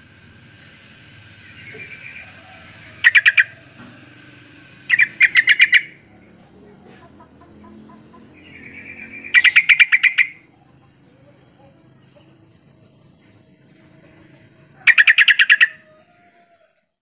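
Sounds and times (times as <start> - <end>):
bird singing rapid repeated notes: 0.0 - 3.6, 4.7 - 15.8
soft bird chatter: 4.9 - 16.7.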